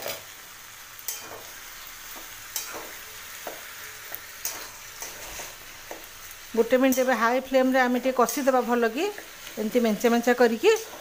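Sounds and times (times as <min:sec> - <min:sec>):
vegetables sizzling in pan: 0:00.0 - 0:11.0
spatula scraping pan: 0:04.4 - 0:06.1, 0:09.2 - 0:11.0.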